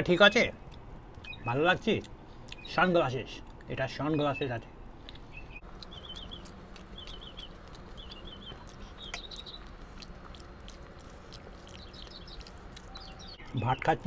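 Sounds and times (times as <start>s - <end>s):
bird chirping: 0.6s - 1.6s, 2.4s - 3.0s, 3.9s - 14.0s
chewing: 2.0s - 2.7s, 5.0s - 14.0s
fingers mixing food: 5.1s - 14.0s.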